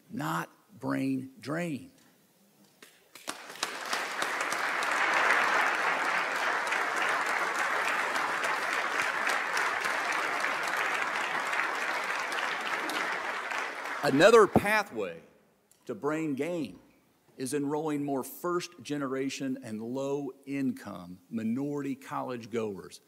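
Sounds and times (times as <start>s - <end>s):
audience applauding: 3.2s - 14.9s.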